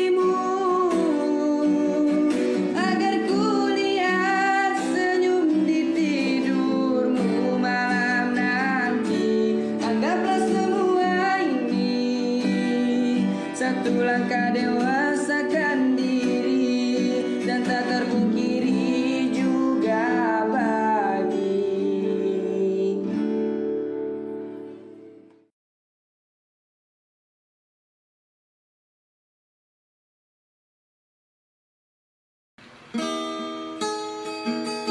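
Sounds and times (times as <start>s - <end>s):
man singing pop ballad: 0.0s - 23.2s
acoustic guitar: 0.0s - 25.5s, 32.6s - 34.9s.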